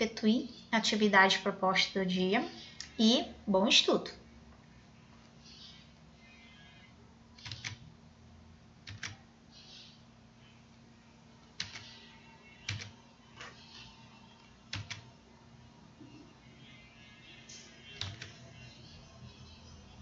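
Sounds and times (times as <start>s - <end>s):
faint steady hum: 0.0s - 20.0s
computer mouse clicks: 7.4s - 7.8s, 8.9s - 9.9s, 11.6s - 12.0s, 18.0s - 18.3s.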